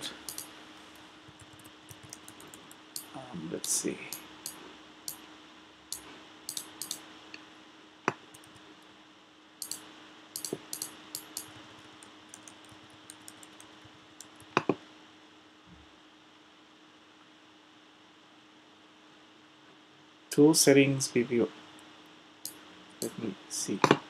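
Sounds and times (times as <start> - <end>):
faint steady hum: 0.0 - 24.0
computer mouse clicks and taps: 0.2 - 5.2, 5.9 - 7.0, 8.1 - 8.6, 9.6 - 9.8, 10.4 - 14.8.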